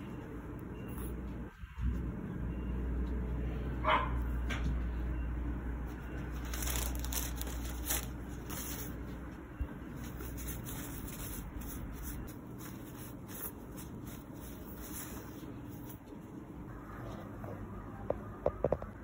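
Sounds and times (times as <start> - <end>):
hands rustling against fabric: 6.3 - 16.4.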